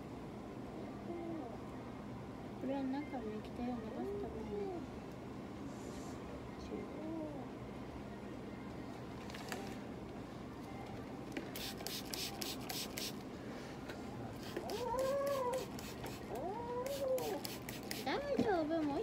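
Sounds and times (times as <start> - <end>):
cat hissing: 14.4 - 17.9
cat yowling: 14.5 - 17.5.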